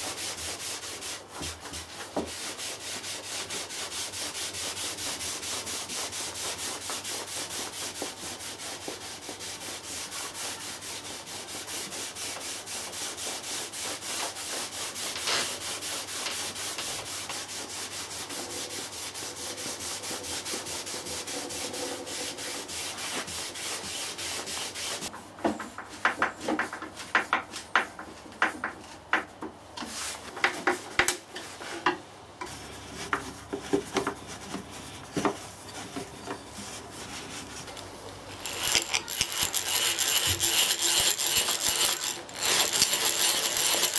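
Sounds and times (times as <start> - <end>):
rag rubbing wood: 0.0 - 25.2, 32.4 - 43.9.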